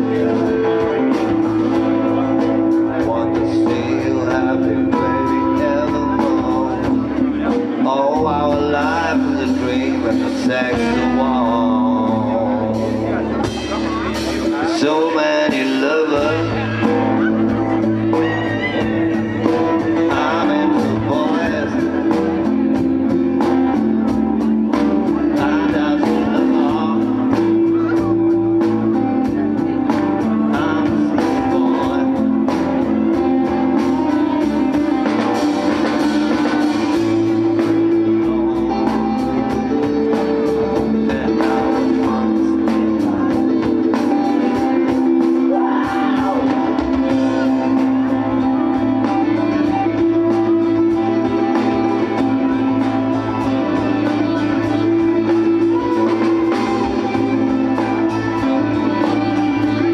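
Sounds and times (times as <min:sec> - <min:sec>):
electric bass guitar: 0:00.0 - 0:59.9
man singing: 0:00.0 - 0:59.9.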